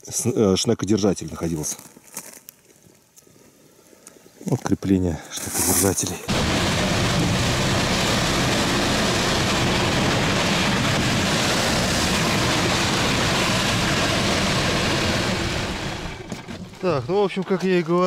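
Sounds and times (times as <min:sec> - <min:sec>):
rushing noise: 0:06.3 - 0:16.8
snow tow engine running: 0:06.3 - 0:18.0.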